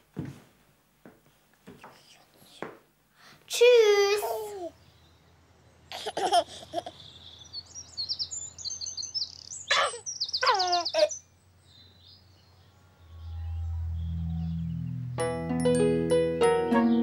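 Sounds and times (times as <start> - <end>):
baby giggling and cooing: 4.0 - 4.8, 5.9 - 7.1
birds chirping in high trills: 4.8 - 15.4
low music tones: 12.8 - 17.0.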